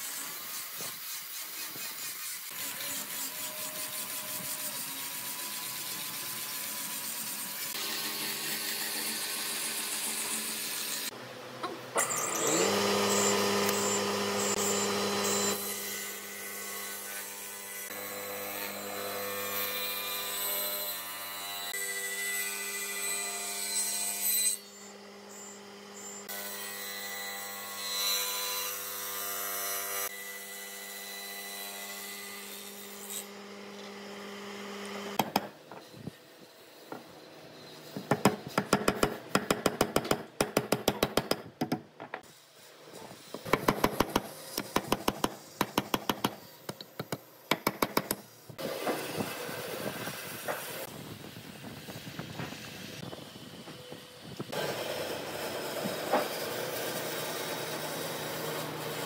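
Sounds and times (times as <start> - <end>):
angle grinder sanding wood: 0.0 - 11.2, 12.0 - 18.7
woodworking machine running: 12.0 - 15.6.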